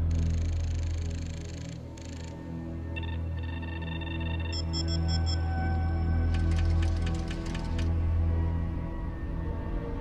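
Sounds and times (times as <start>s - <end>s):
high electronic beeps: 3.7s - 5.6s.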